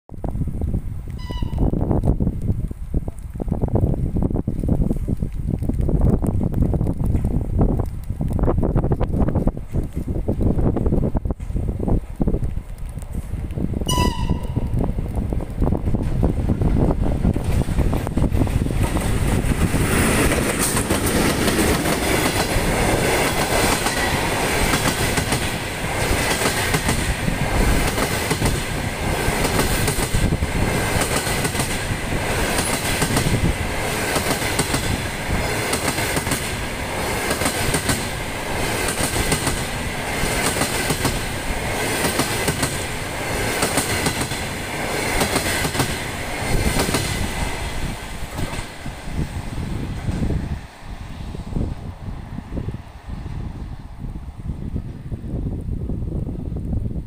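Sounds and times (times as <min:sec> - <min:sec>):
electric locomotive passing: 0:09.3 - 0:56.8
train wheels clattering on rail joints: 0:15.8 - 0:49.2.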